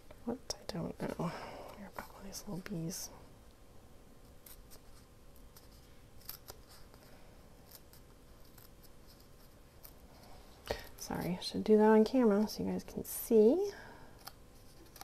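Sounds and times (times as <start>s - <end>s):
faint steady hum: 0.0s - 15.0s
paper snipping and crinkling: 4.4s - 7.0s.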